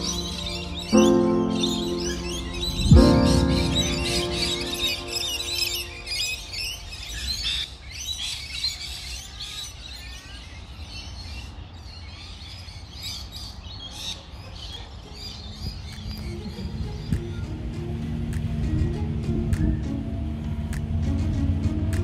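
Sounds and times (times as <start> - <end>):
low outdoor rumble: 0.0 - 7.5, 15.6 - 22.0
small birds chirping: 0.0 - 22.0.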